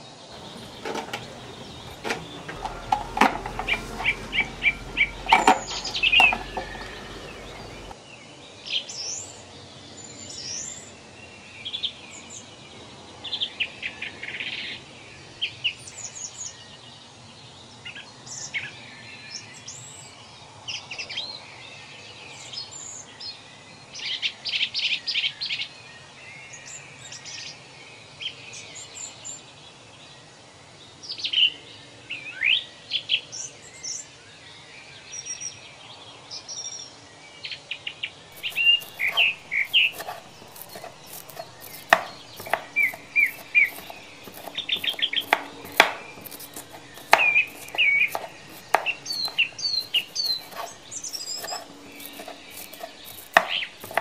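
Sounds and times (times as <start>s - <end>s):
knife chopping on cutting board: 0.4s - 7.9s, 38.4s - 54.0s
small birds chirping: 0.4s - 8.0s, 38.4s - 54.0s.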